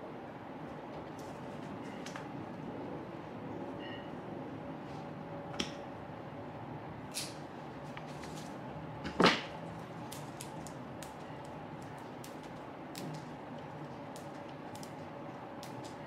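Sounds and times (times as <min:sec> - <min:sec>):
stems clicking and rustling: 0:07.2 - 0:16.0.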